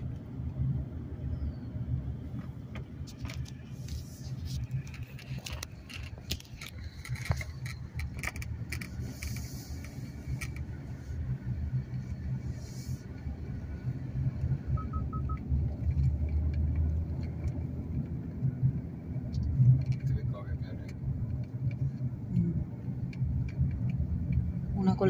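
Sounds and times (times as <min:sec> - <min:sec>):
car road rumble: 0:00.0 - 0:25.0.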